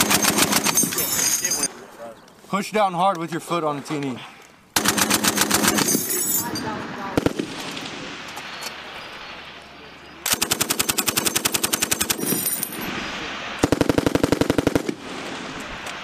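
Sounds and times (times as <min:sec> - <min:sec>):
machine gun firing bursts: 0:00.0 - 0:01.0, 0:04.8 - 0:06.2, 0:07.1 - 0:07.9, 0:10.3 - 0:12.4, 0:13.6 - 0:15.4.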